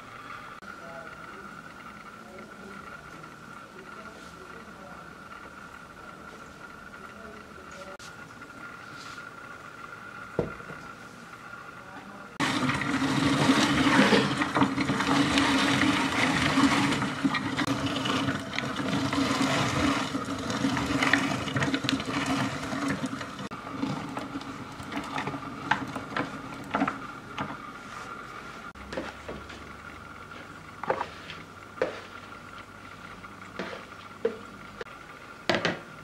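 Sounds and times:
electric grinder grinding nuts: 12.4s - 27.6s.

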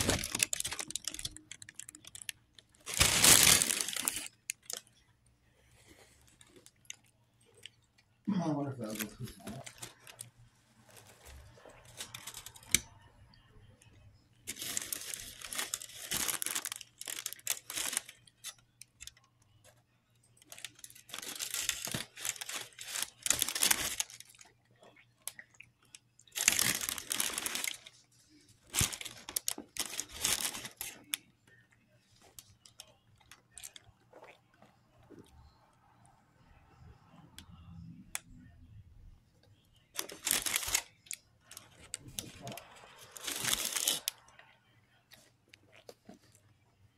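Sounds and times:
foil crinkling and tearing: 0.0s - 4.8s, 8.7s - 12.9s, 14.5s - 18.9s, 20.4s - 24.4s, 26.3s - 28.0s, 28.6s - 31.2s, 40.0s - 44.3s.

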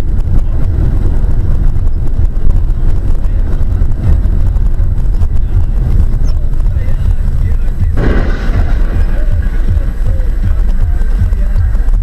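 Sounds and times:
vehicle rumble and road noise: 0.0s - 12.0s.

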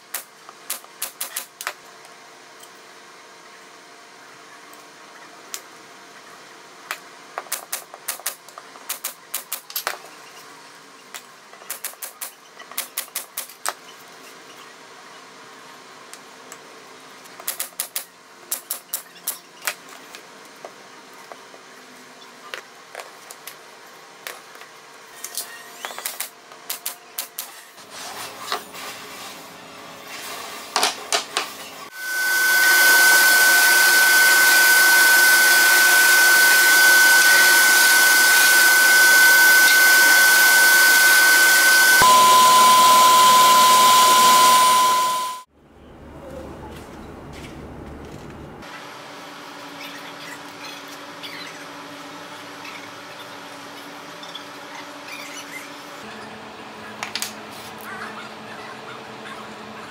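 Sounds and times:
pneumatic nailer firing: 0.1s - 1.5s
belt sander whining: 31.9s - 45.5s.

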